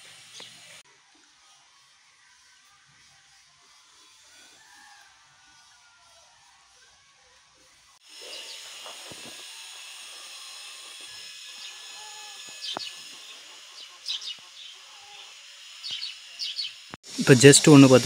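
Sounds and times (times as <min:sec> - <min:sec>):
outdoor hiss: 0:00.0 - 0:00.8, 0:08.0 - 0:18.0
birds chirping: 0:11.5 - 0:18.0.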